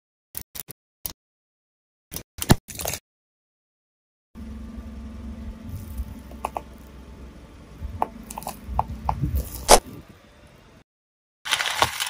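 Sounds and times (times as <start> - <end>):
car rumble: 4.4 - 10.8
objects crushed under car tyre: 11.5 - 12.0.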